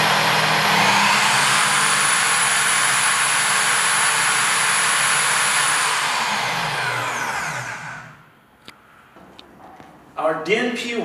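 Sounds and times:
drill motor whining: 0.0s - 8.3s.

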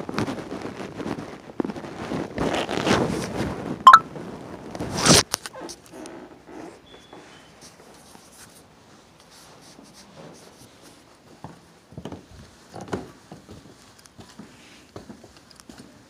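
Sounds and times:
soft footsteps on carpet: 8.8s - 16.0s.

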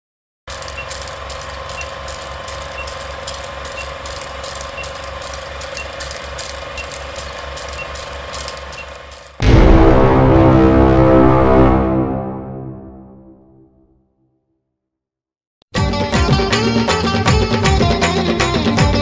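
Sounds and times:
film projector clatter: 0.5s - 9.4s.

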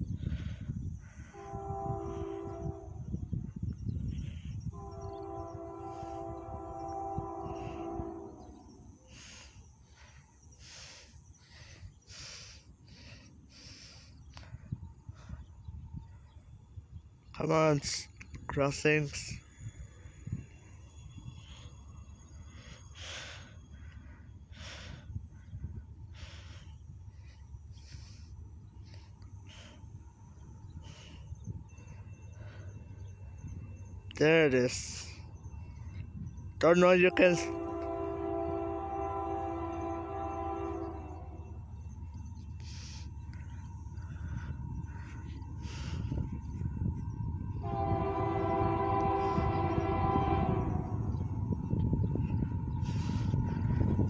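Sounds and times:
person breathing: 0.0s - 1.6s, 9.0s - 15.6s, 22.3s - 33.1s, 42.6s - 46.6s, 52.8s - 54.0s
wind rumble on microphone: 0.0s - 54.0s
locomotive air horn blast: 1.1s - 3.2s, 4.6s - 9.4s, 36.7s - 41.6s, 47.6s - 51.2s
low rumble: 39.5s - 54.0s.

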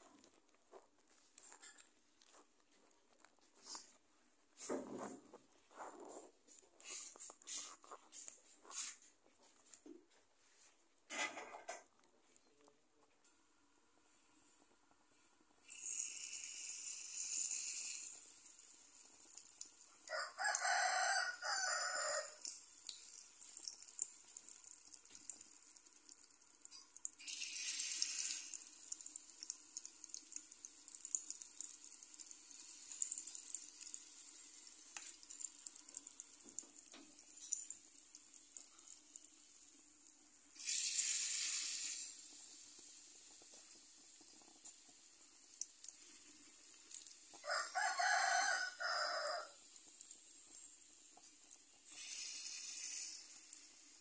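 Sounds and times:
batter sizzling in hot oil: 15.6s - 54.0s.

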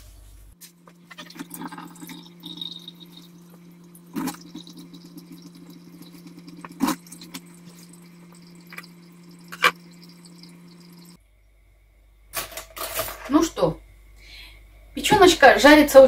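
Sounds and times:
kitchen tap running: 0.9s - 11.2s.

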